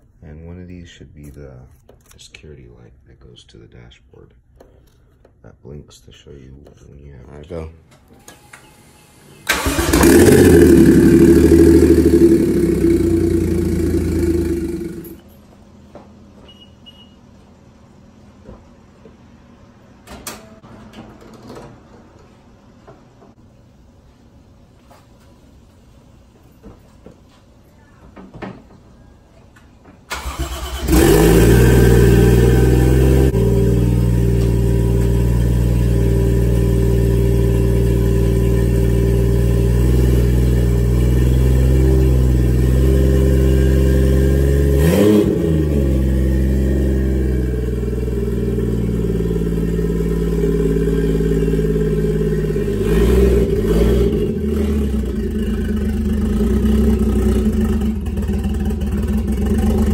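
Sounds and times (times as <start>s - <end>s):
car engine cranking and idling: 9.4s - 15.2s, 30.1s - 59.9s
engine revving: 9.4s - 15.2s, 30.1s - 59.9s.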